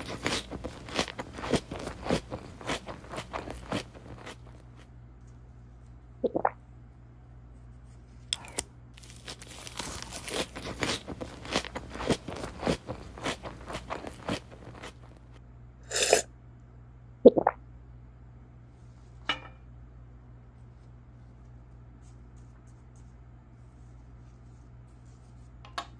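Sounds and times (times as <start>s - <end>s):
crunching chewing sounds: 0.0s - 5.0s, 8.3s - 15.4s
paper crinkling: 0.0s - 5.9s, 8.4s - 15.3s.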